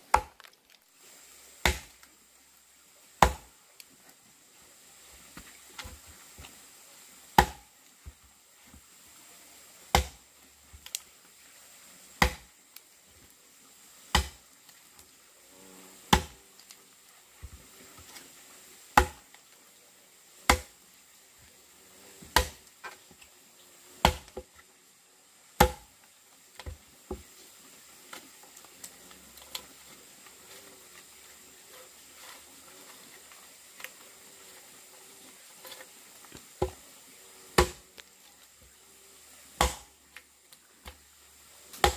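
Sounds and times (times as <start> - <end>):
axe chopping wood: 0.0 - 0.5, 1.6 - 2.0, 3.2 - 3.5, 7.4 - 7.7, 9.9 - 10.3, 12.2 - 12.5, 14.1 - 14.4, 16.1 - 16.4, 19.0 - 19.3, 20.5 - 20.8, 22.2 - 22.7, 24.0 - 24.5, 25.6 - 25.9, 37.6 - 37.9, 39.6 - 39.9.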